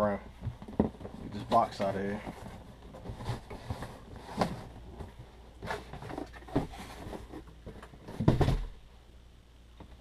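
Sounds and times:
cardboard scraping: 0:00.9 - 0:08.7
dull knocks of boxes: 0:02.3 - 0:08.8.

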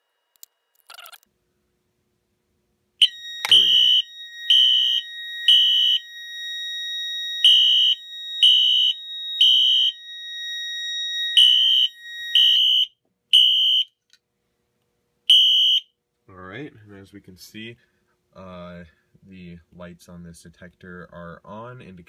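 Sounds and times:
fire alarm horn blasts: 0:03.0 - 0:14.0, 0:15.3 - 0:15.9.

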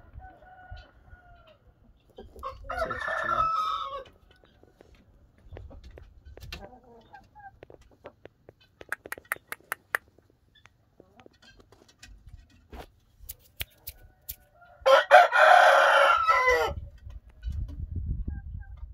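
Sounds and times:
rooster crowing: 0:02.4 - 0:04.1, 0:14.1 - 0:16.8
soft clucking calls: 0:04.0 - 0:14.6
sharp clicks: 0:07.6 - 0:10.8.

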